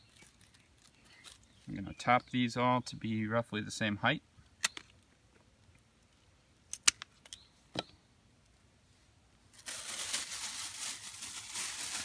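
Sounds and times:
plastic bag crinkling: 0.0 - 1.5, 9.6 - 12.0.

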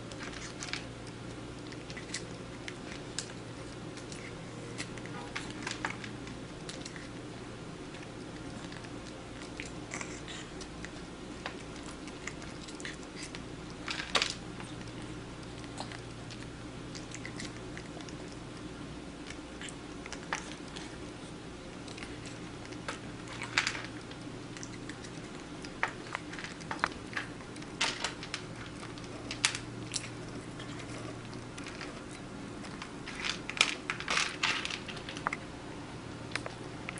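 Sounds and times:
kitten crunching food: 0.0 - 36.9
low steady hum: 0.0 - 36.9.

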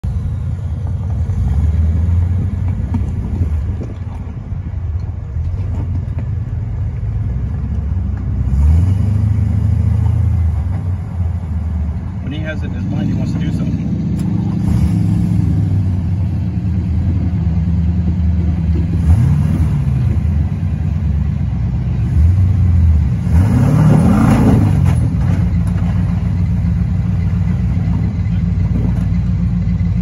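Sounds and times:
engine droning and revving: 0.0 - 30.0.

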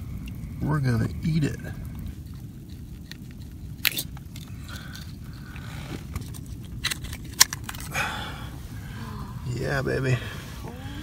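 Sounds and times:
knife scraping oyster shell: 2.2 - 5.2.

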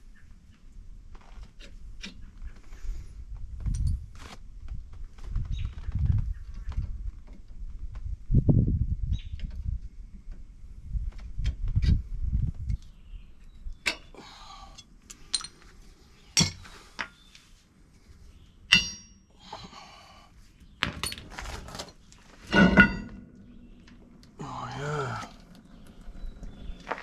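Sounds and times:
metal clatter: 18.7 - 19.2, 20.8 - 23.5.

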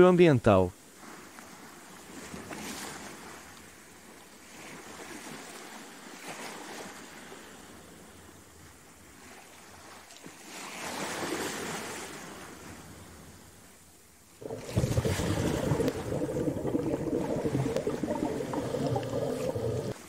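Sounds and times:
ocean waves washing in: 14.4 - 20.0.

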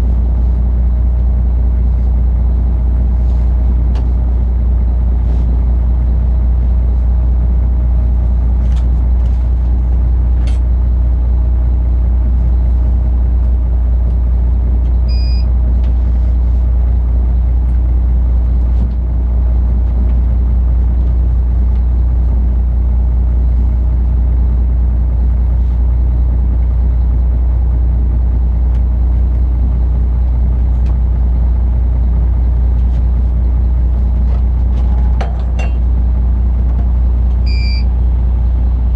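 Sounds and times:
diesel engine droning: 0.0 - 38.9
short electronic beep: 15.1 - 15.5, 37.5 - 37.9.

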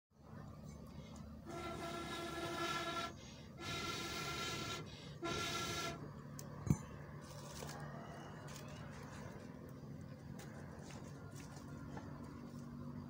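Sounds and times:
blowing through blowpipe: 1.5 - 6.0.

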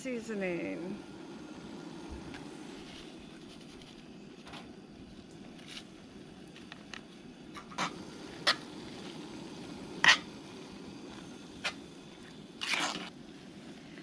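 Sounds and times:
steady low hiss: 0.0 - 14.0
utensil scraping cast-iron pot: 2.6 - 4.1, 6.5 - 9.3, 10.0 - 13.2.

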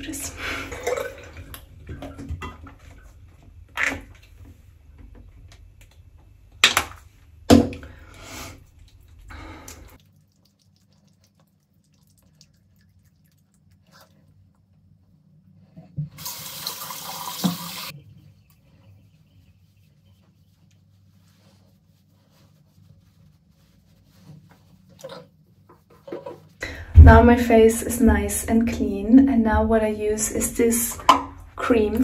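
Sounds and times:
water splashing at a sink: 0.5 - 4.4, 8.6 - 13.8, 16.1 - 17.9
running tap water: 16.1 - 17.9.

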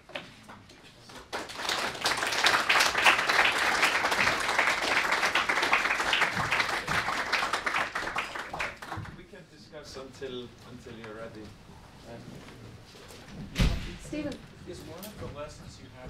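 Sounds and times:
audience applauding: 1.2 - 9.2.

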